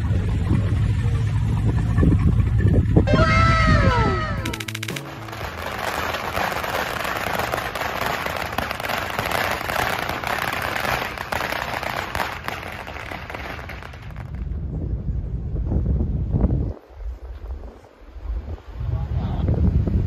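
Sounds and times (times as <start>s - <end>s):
firecrackers popping: 3.8s - 14.6s.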